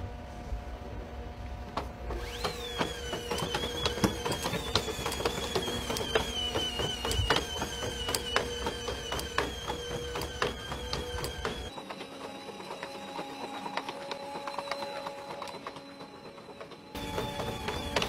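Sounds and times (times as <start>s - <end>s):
robot drive whining: 2.0s - 18.0s
robot feet clicking and tapping: 2.8s - 11.8s.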